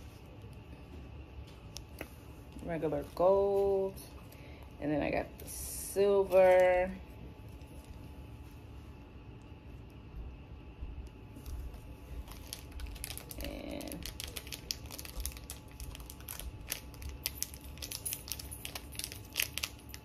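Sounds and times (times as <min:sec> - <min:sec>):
plastic bag crinkling: 0:11.3 - 0:20.0.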